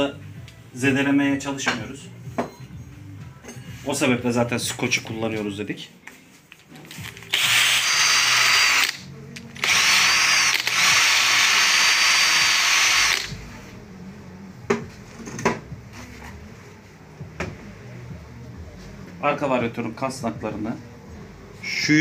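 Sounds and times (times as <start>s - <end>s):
drill whining with abrasive pad: 7.3s - 13.4s.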